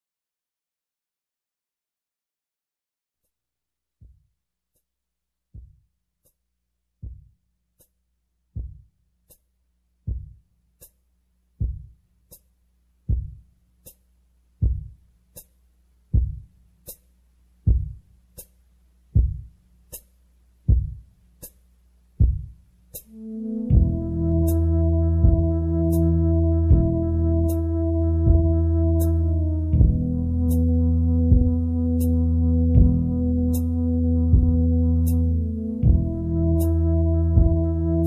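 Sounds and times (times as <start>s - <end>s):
heartbeat thumps: 7.0s - 7.3s, 8.6s - 8.9s, 10.1s - 10.4s, 11.6s - 12.0s, 13.1s - 13.4s, 14.6s - 15.0s, 16.1s - 16.5s, 17.6s - 18.1s, 19.2s - 19.5s, 20.7s - 21.1s, 22.2s - 22.6s, 23.7s - 24.2s, 25.2s - 25.6s, 26.7s - 27.2s, 28.2s - 28.6s, 29.7s - 30.3s, 31.2s - 31.7s, 32.7s - 33.3s, 34.3s - 34.7s, 35.8s - 36.3s, 37.4s - 37.7s.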